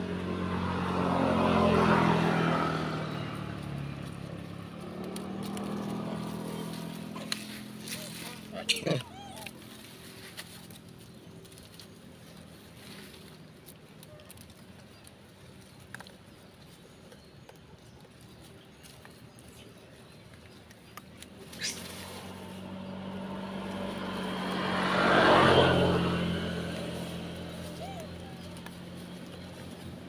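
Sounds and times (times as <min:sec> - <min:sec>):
vehicle engine approaching: 0:00.0 - 0:30.0.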